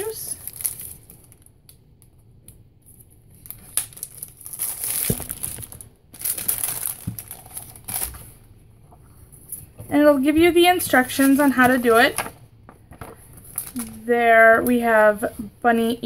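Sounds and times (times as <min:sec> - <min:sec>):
plastic bags crinkling: 0:00.0 - 0:01.6, 0:03.0 - 0:08.4, 0:11.1 - 0:15.1.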